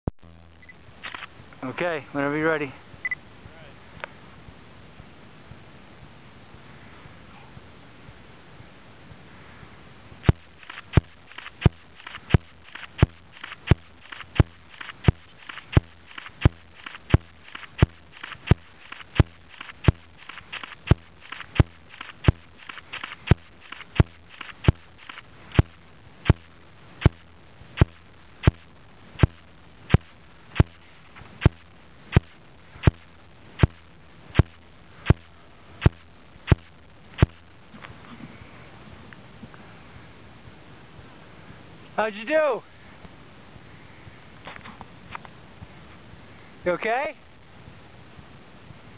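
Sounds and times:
sharp clicks: 0.5s - 1.4s, 10.2s - 37.6s.

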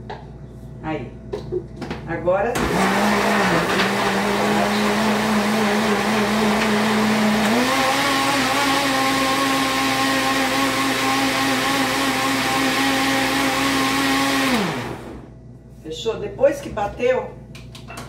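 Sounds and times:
blender motor running: 2.6s - 15.3s.

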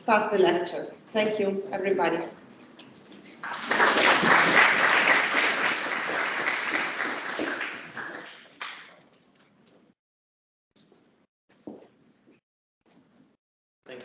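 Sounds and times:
audience applauding: 3.4s - 9.0s.

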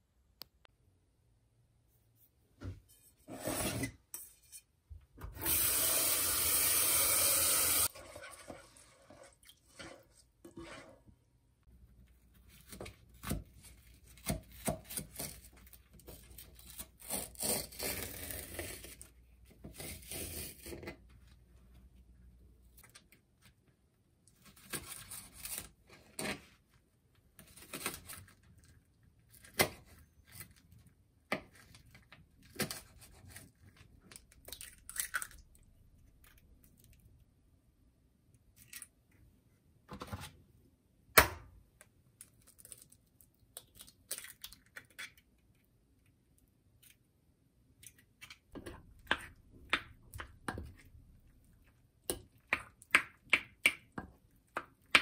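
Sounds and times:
wooden spoon scraping ceramic bowl: 9.1s - 11.1s.

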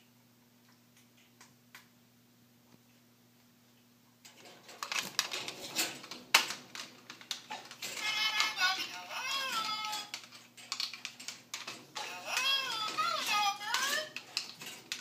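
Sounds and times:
plastic toy knocking and rattling: 4.4s - 15.0s.

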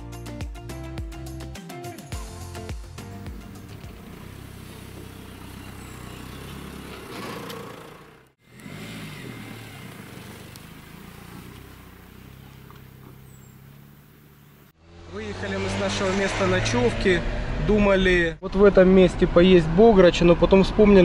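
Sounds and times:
road noise: 2.4s - 21.0s
car engine hum: 3.1s - 18.4s.

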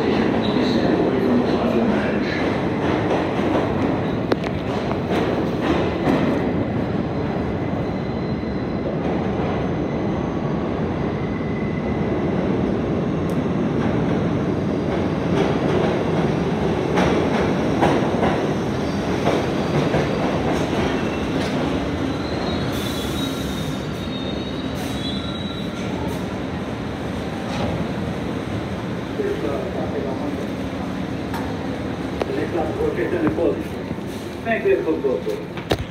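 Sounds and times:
train wheels rumbling on rails: 0.0s - 35.9s
high wheel and brake squeal: 22.0s - 26.0s.

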